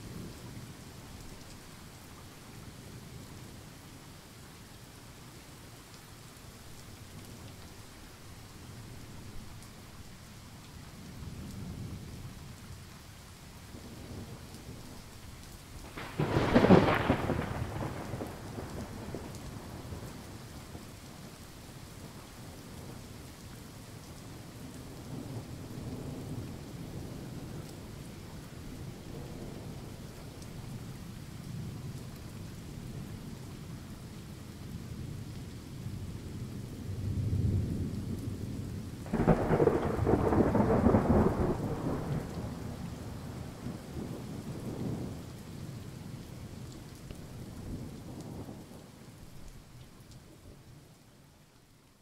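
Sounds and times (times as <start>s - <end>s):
steady rain: 0.0s - 52.0s
thunder rumbling: 15.8s - 20.3s, 36.9s - 45.2s
loud thunderclap: 15.9s - 19.1s, 39.0s - 42.3s.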